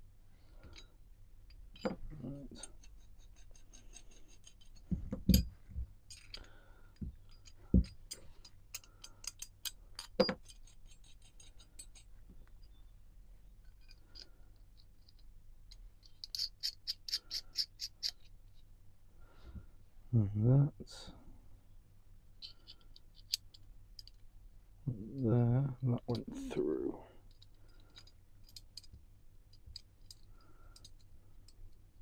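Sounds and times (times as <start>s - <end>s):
metal parts clicking and knocking: 0.6s - 12.8s, 13.6s - 18.7s, 22.4s - 24.3s, 27.2s - 32.0s
light ticks of nut turning: 6.1s - 12.8s.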